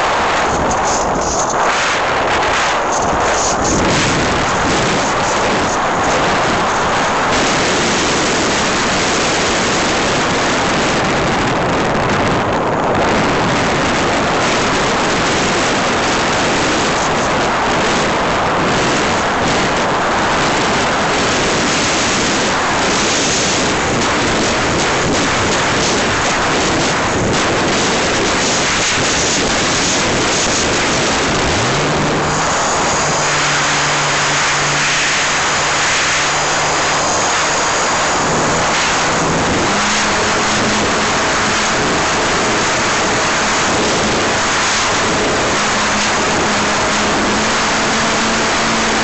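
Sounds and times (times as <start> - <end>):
small aircraft engine and airflow: 0.0 - 49.0.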